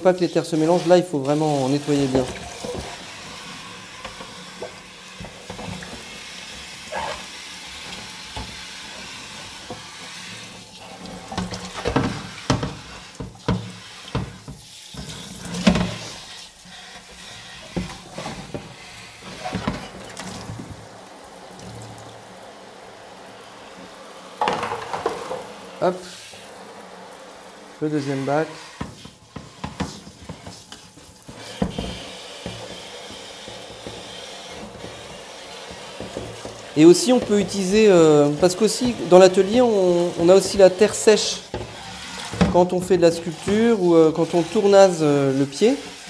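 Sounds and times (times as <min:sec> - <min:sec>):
running water: 0:00.0 - 0:46.0
sponge scrubbing: 0:00.1 - 0:20.6, 0:27.8 - 0:46.0
water sloshing in a tub: 0:00.1 - 0:46.0
plastic knocking against tub: 0:24.4 - 0:25.5.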